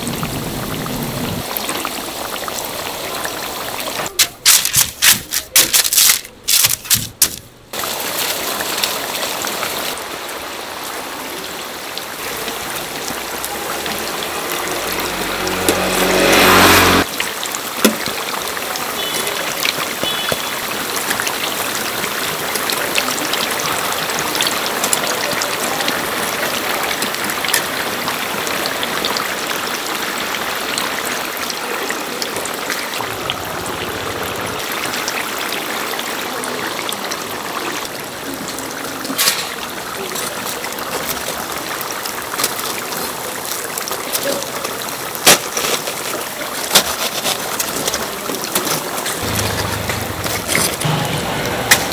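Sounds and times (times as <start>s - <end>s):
oil sizzling and bubbling: 0.0s - 5.3s, 7.6s - 31.4s.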